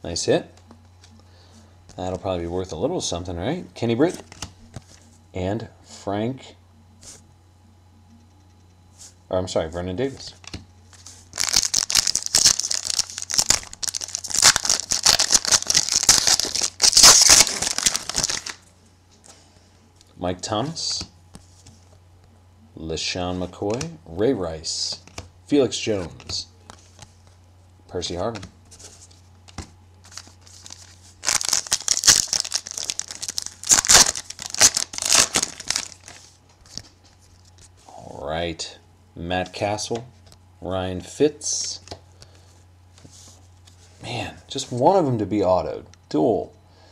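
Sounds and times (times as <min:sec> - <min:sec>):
wrapper crinkling and tearing: 0:11.3 - 0:18.6, 0:30.0 - 0:36.3.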